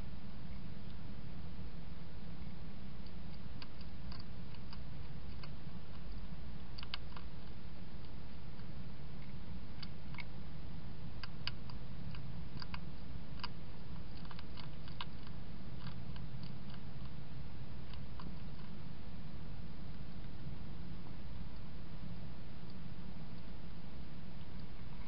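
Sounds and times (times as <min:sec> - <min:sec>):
low hum: 0:00.0 - 0:25.0
hedgehog chewing and crunching: 0:03.0 - 0:10.4, 0:11.1 - 0:19.0.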